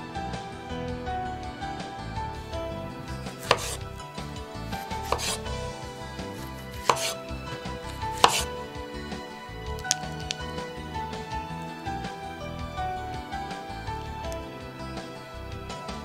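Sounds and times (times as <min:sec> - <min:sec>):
knife slicing on wooden board: 0:03.4 - 0:03.9, 0:04.7 - 0:05.6, 0:06.2 - 0:08.6.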